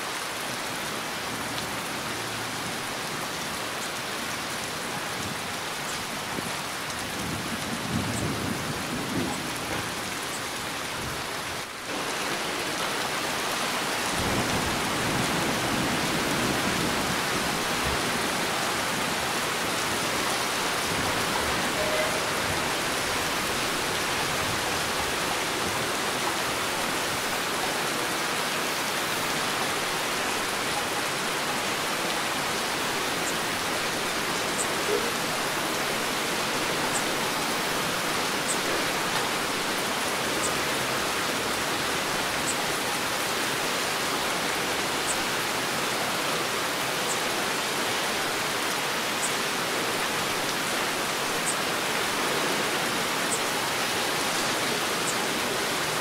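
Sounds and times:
heavy rain falling: 0:00.0 - 0:56.0.

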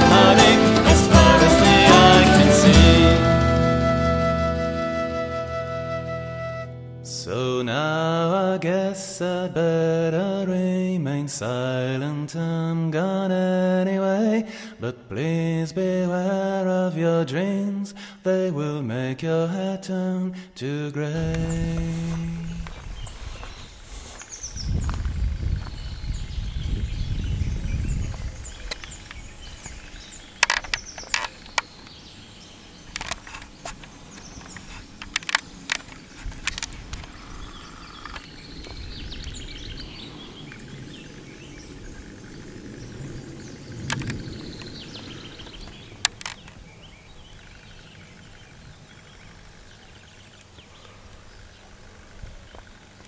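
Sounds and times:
wind rumble on microphone: 0:21.2 - 0:31.1, 0:34.0 - 0:49.0
birds chirping and trilling: 0:21.2 - 0:53.0
sharp clicks and knocks: 0:30.4 - 0:31.9, 0:32.9 - 0:37.2.

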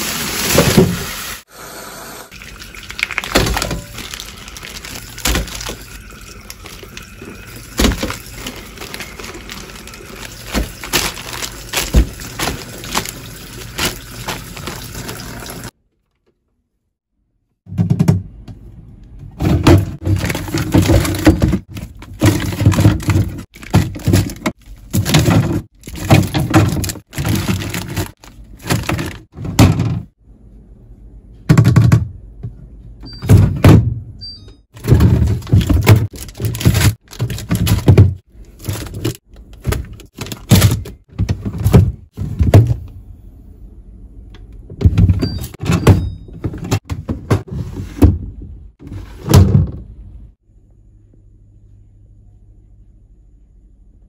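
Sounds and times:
plastic drawers thunking: 0:19.3 - 0:30.1, 0:34.8 - 0:42.9, 0:44.7 - 0:49.9.

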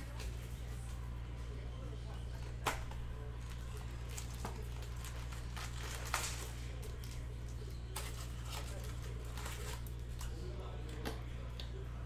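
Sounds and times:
steady low hum: 0:00.0 - 0:12.0
foil packs rustling and crinkling: 0:03.4 - 0:10.4.

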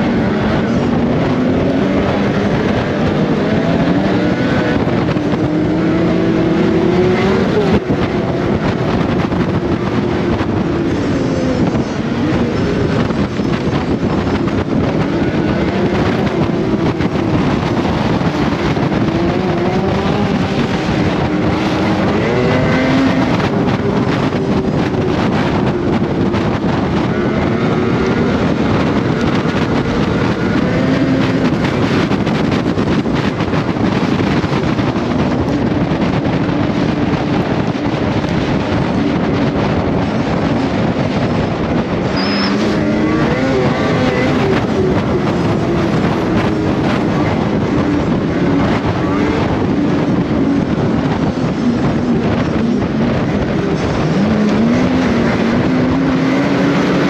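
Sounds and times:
snowmobile engine running hard: 0:00.0 - 0:57.0.

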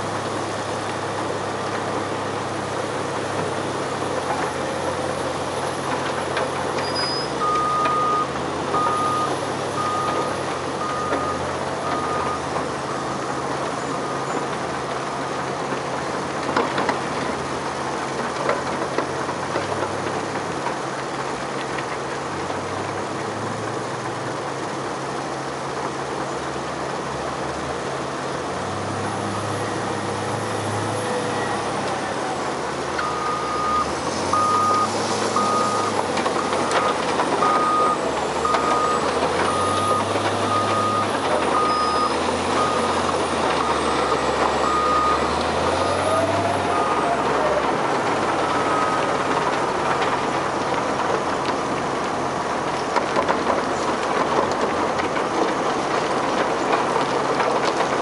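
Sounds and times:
diesel engine revving: 0:00.0 - 0:20.4, 0:26.7 - 0:58.0
reversing alarm beeping: 0:07.0 - 0:13.1, 0:33.0 - 0:47.2
soil screener running: 0:24.4 - 0:58.0.

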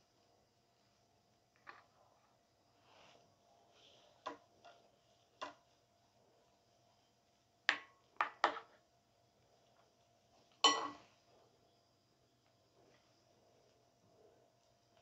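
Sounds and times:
dishes and utensils clinking: 0:10.6 - 0:11.1.

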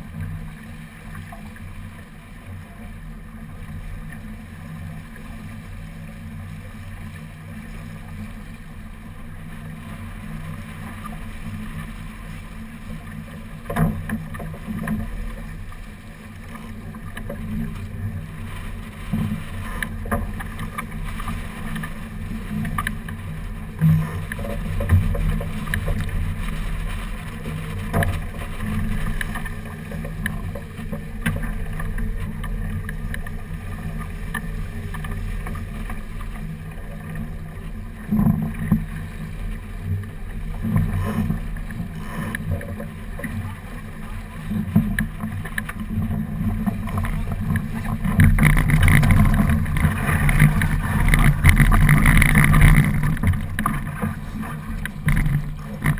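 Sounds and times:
water rushing along a hull: 0:00.0 - 0:55.9.

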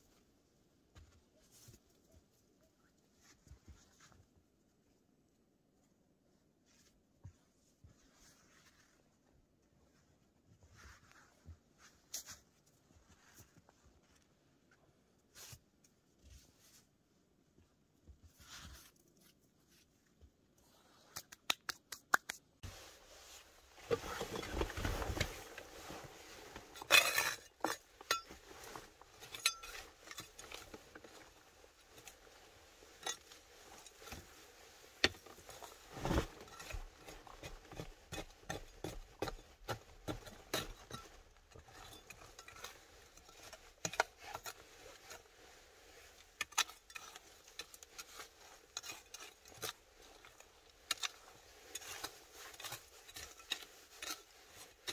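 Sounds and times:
metal trowel scraping stony soil: 0:23.5 - 0:54.9.

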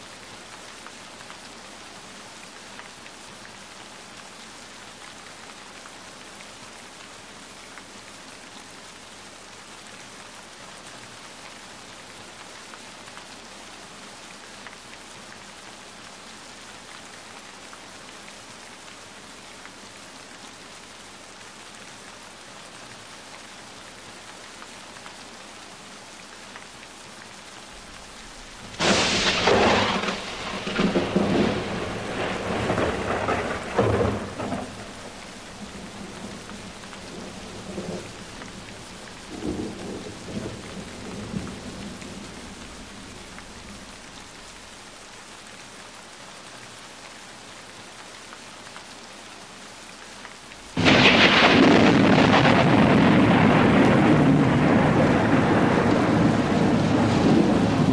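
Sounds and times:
heavy downpour: 0:00.0 - 0:57.9
steady rain: 0:00.0 - 0:57.9
thunder rumbling: 0:27.8 - 0:44.5, 0:50.8 - 0:57.9.

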